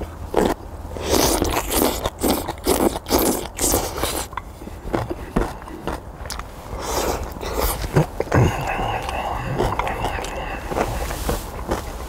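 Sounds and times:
person eating noodles: 0.0s - 12.0s.

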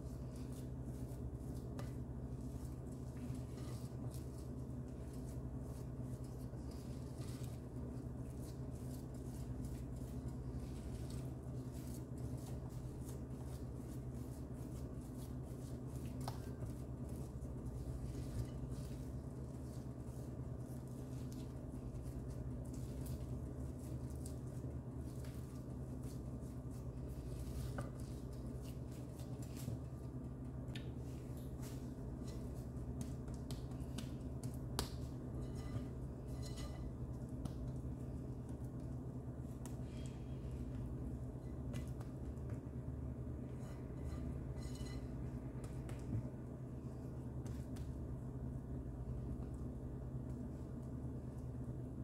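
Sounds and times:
spatula patting soft dough: 0.0s - 52.0s
steady low hum: 0.0s - 52.0s
spatula scraping dough in bowl: 35.0s - 37.4s, 43.4s - 45.4s.

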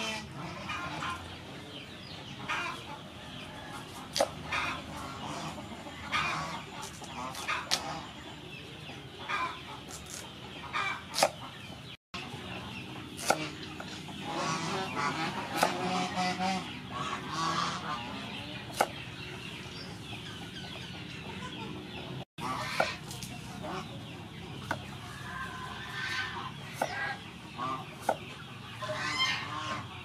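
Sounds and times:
chickens clucking: 0.0s - 30.0s
knife slicing carrots on board: 4.1s - 4.4s, 11.1s - 11.4s, 13.2s - 13.6s, 15.5s - 15.8s.

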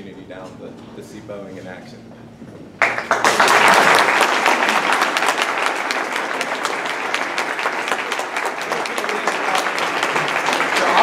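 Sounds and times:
audience applauding: 2.8s - 11.0s.

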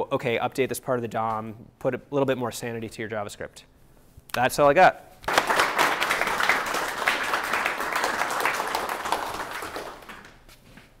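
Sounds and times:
audience applauding: 5.3s - 10.4s.

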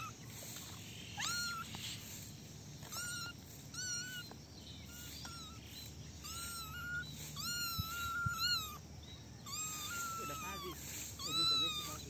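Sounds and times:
kitten mewing: 1.2s - 1.8s, 2.8s - 4.3s, 6.2s - 8.8s, 9.4s - 12.0s.

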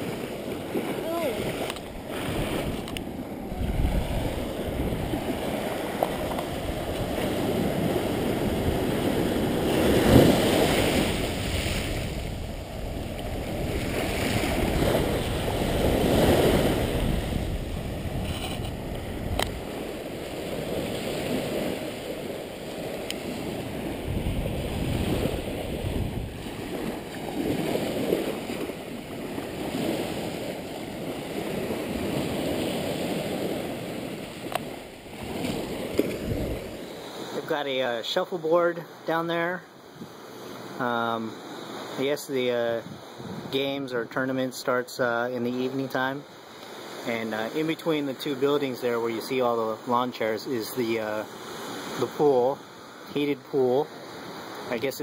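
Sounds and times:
wind rumbling on microphone: 0.0s - 36.9s, 42.8s - 43.6s
small waves breaking on sand: 0.0s - 55.0s.

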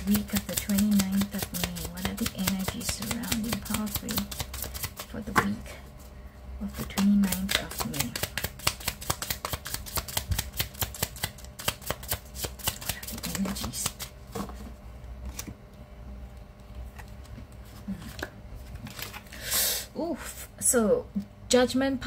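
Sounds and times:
cards being shuffled: 0.0s - 5.6s, 6.8s - 15.6s, 16.7s - 19.4s.

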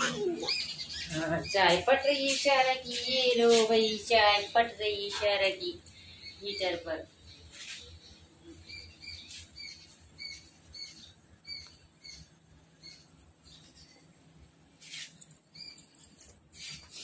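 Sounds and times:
small bird chirping: 0.0s - 2.0s, 5.9s - 14.1s, 14.8s - 16.0s
hissy rustles: 14.7s - 17.0s.

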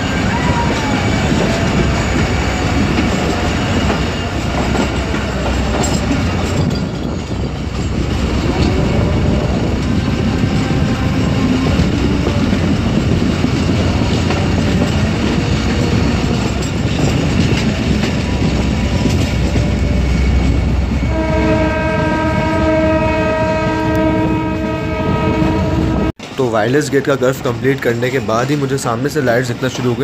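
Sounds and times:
train rolling on rails: 0.0s - 30.0s
train wheel clatter: 0.0s - 30.0s
train horn blast: 8.2s - 12.4s, 20.8s - 26.1s.

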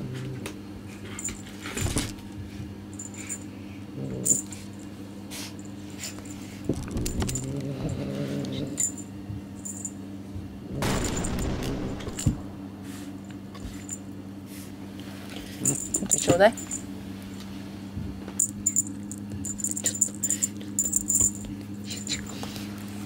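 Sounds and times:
small bell jingling: 3.0s - 3.5s, 15.6s - 16.9s, 18.4s - 22.1s
kitten growling: 7.2s - 8.8s.

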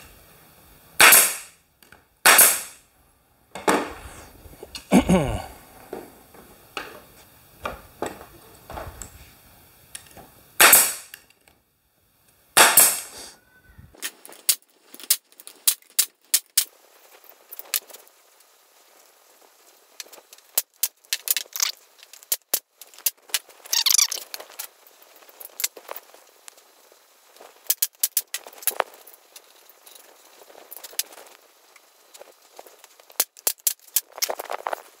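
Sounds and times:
nail gun firing: 1.0s - 1.6s, 2.2s - 2.8s, 10.6s - 11.2s, 12.6s - 13.2s
boards knocking: 3.6s - 4.0s.

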